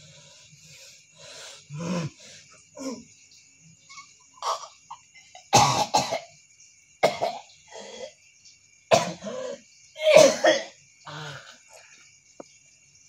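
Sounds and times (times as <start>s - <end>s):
man coughing harshly: 5.5s - 6.2s, 7.0s - 7.4s, 8.9s - 11.2s
man clearing throat: 8.9s - 11.3s.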